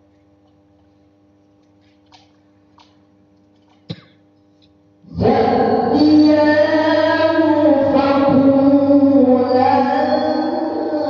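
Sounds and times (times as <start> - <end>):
child reciting melodically: 5.1 - 11.0.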